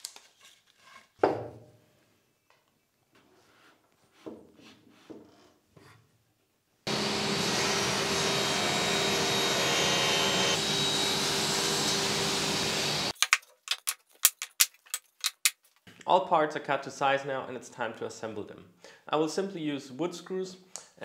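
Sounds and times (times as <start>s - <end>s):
dust extractor running: 6.9s - 13.1s
table saw cutting board: 6.9s - 13.1s.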